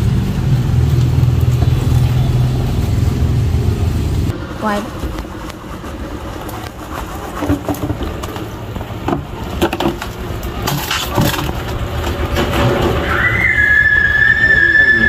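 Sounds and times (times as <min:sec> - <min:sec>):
high whistle-like tone: 0:13.0 - 0:15.0.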